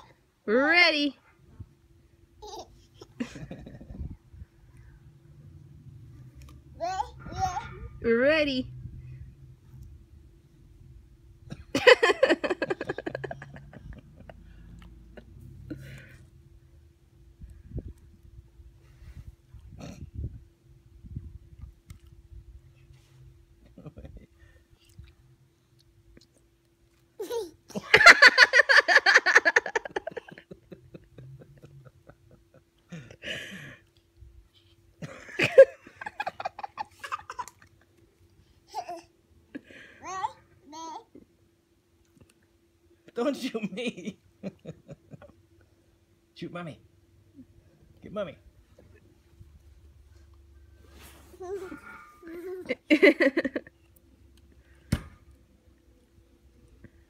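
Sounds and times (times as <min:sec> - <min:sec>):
laughter in rhythmic bursts: 0:03.0 - 0:04.2, 0:11.5 - 0:16.0, 0:23.6 - 0:24.6, 0:27.7 - 0:33.8, 0:35.0 - 0:38.0, 0:43.7 - 0:45.6, 0:52.6 - 0:53.8.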